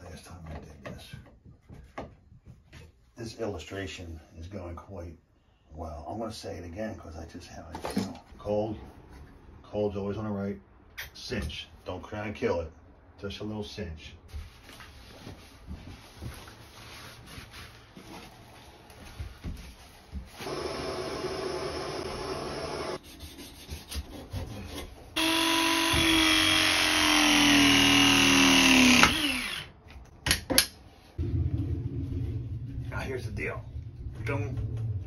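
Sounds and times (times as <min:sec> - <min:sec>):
cordless power tool running: 0:20.4 - 0:23.0, 0:25.2 - 0:29.7.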